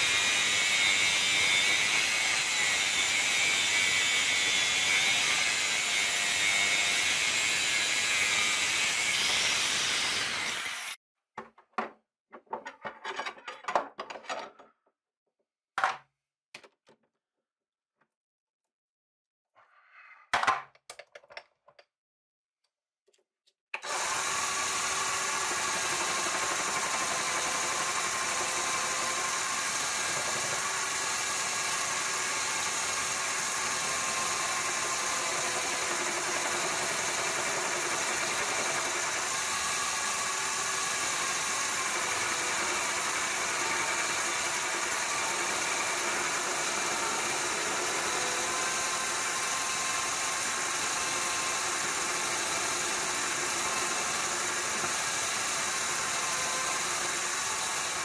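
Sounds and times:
lathe motor whining: 0:23.8 - 0:58.0.

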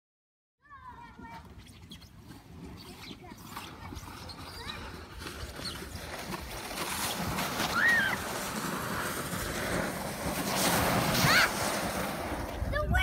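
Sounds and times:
plastic sled scraping over snow: 0:00.9 - 0:13.0
short high squeals: 0:07.0 - 0:08.2.

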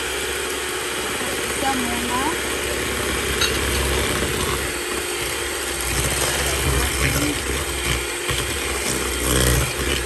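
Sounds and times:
electric hand mixer running: 0:00.0 - 0:10.0.

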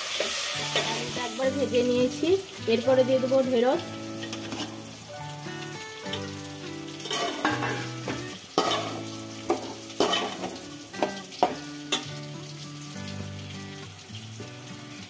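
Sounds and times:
soft background music: 0:00.0 - 0:15.0
vegetables sizzling in oil: 0:00.0 - 0:15.0
metal spatula scraping a pot: 0:04.2 - 0:04.8, 0:07.0 - 0:11.2.

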